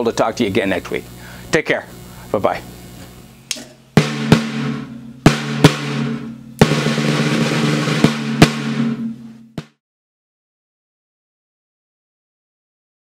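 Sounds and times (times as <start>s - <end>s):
cymbal wash: 0.0s - 9.6s
snare drum hits: 4.0s - 9.8s
snare drum roll: 4.0s - 9.8s.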